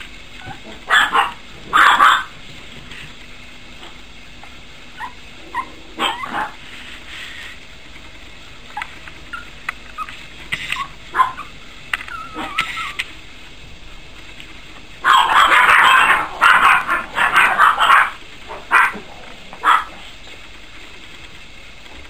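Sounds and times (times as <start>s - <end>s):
puppy yipping and whimpering: 4.4s - 6.6s, 8.8s - 13.1s.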